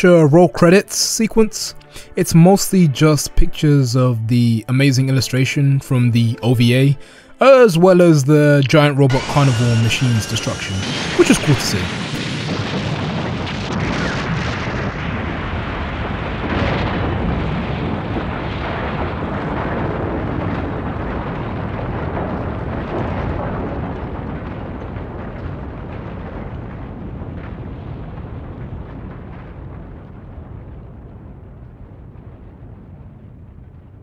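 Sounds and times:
explosions and rumble: 8.3s - 34.0s
falling debris: 9.1s - 34.0s.

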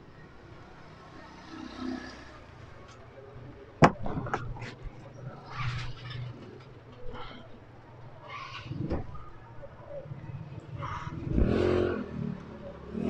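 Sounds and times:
objects knocking and clicking: 3.8s - 4.8s.

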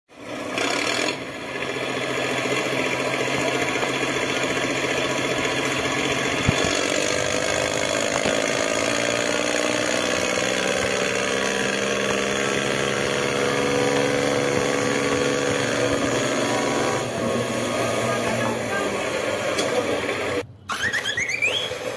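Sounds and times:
engine-like running sound: 0.1s - 20.5s.

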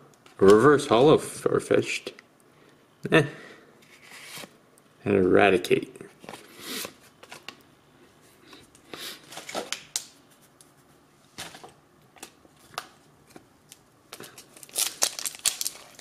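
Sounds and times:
foil packs rustling: 14.1s - 16.0s.

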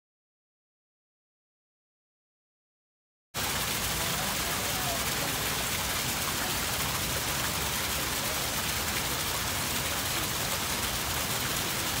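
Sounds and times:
fountain water splashing: 3.4s - 12.0s.

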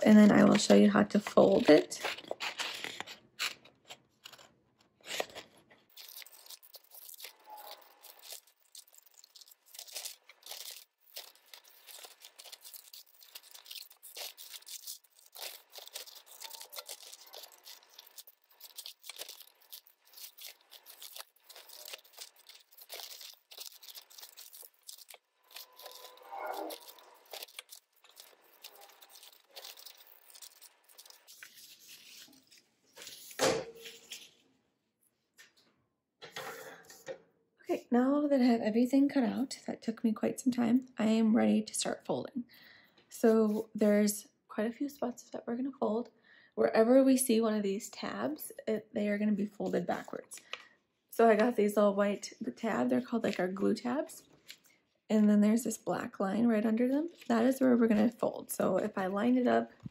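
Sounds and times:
paper rustling: 0.3s - 34.4s
scissors snipping paper: 0.4s - 33.2s.

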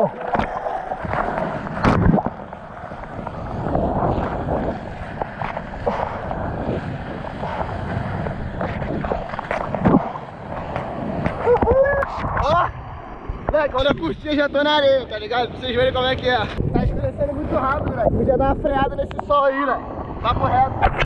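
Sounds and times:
sharp water splashes: 0.0s - 12.4s
whitewater rushing and churning: 0.0s - 15.6s
wind buffeting microphone: 0.0s - 21.0s.

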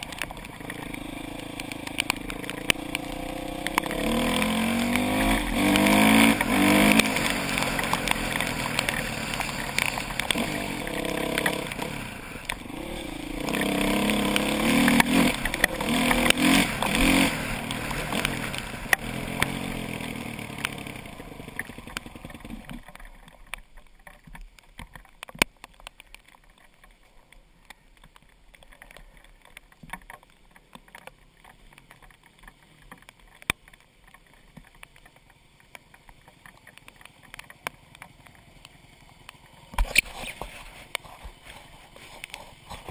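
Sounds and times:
motorcycle engine revving: 0.0s - 22.8s
faint ticks and rattles: 0.0s - 42.9s.

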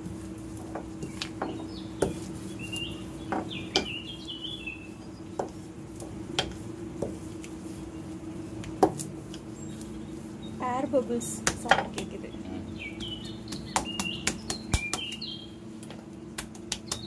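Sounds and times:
steady low hum: 0.0s - 17.0s
air bubbles popping in dough: 13.0s - 15.3s, 16.3s - 17.0s.

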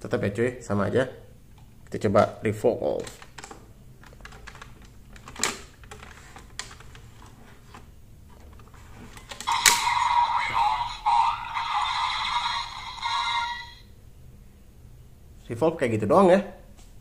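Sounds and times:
electronic toy sound effects: 9.4s - 13.8s
toy speaker music: 9.4s - 13.8s.

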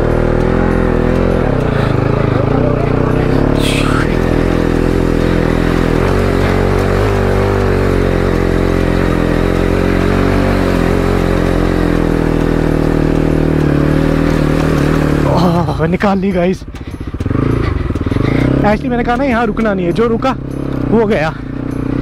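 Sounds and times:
motorcycle engine revving: 0.0s - 22.0s.

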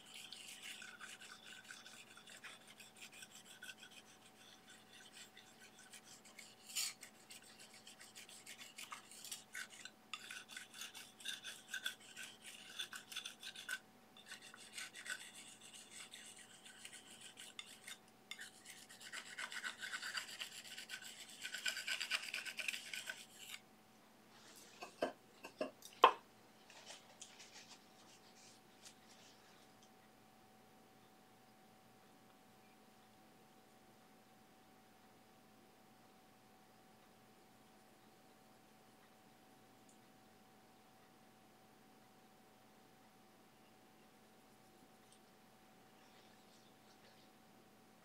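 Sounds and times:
brush scratching paint on panel: 0.0s - 23.6s.

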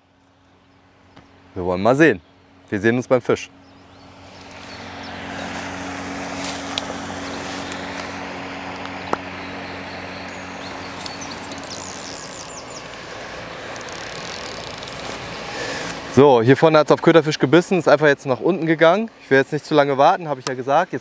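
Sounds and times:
distant engine drone: 0.0s - 21.0s
outdoor ambient noise: 0.0s - 21.0s
bird chirps: 3.5s - 5.6s, 8.9s - 13.0s.

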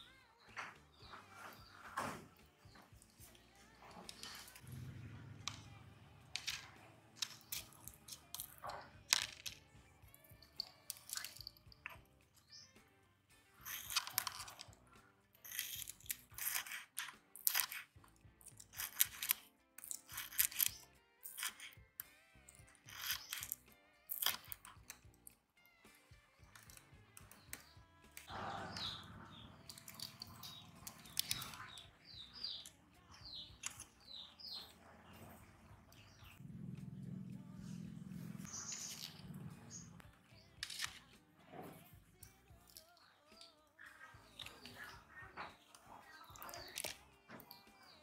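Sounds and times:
birds chirping: 26.6s - 41.9s, 42.9s - 48.0s.

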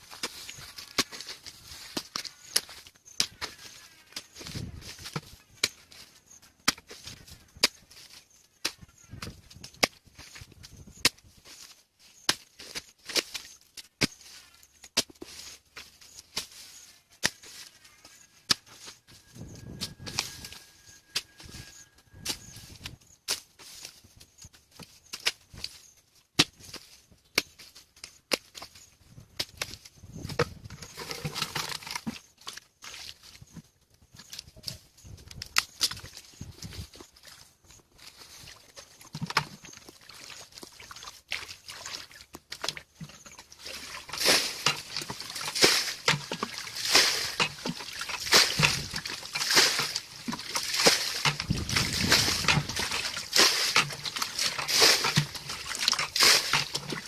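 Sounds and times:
muddy water splashing: 35.8s - 57.0s
hoe chopping into wet mud: 43.6s - 57.0s.

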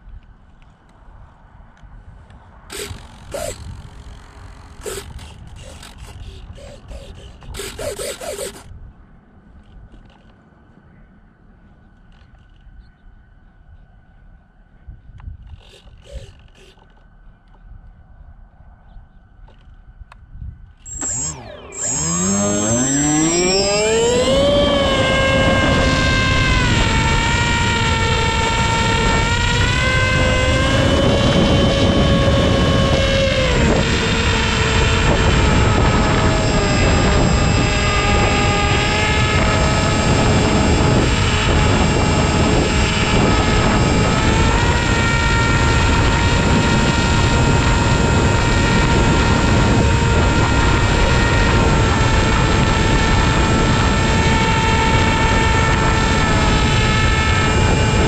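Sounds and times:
wind buffeting microphone: 0.0s - 10.1s, 12.3s - 58.0s
model plane motor whining: 2.7s - 8.7s, 15.5s - 17.0s, 20.8s - 58.0s.

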